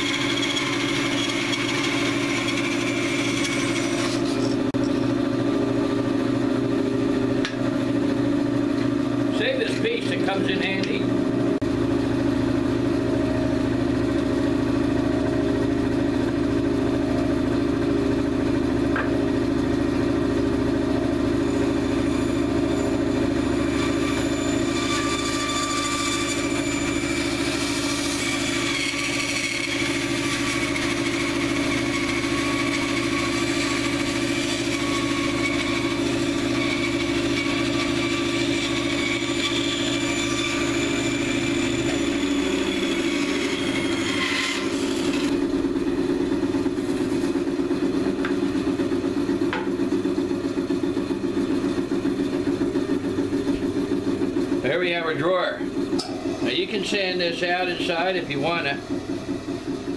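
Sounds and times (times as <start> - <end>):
saw blade rasping through wood: 0.0 - 4.8, 21.8 - 45.4
bandsaw motor hum: 0.0 - 59.9.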